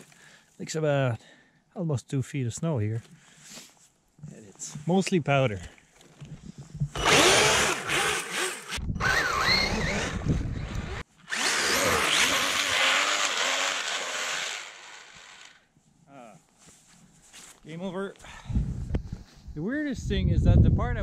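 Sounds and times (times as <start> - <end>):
electric motor whining: 6.9 - 15.6
rubber track churning through snow: 7.0 - 15.2.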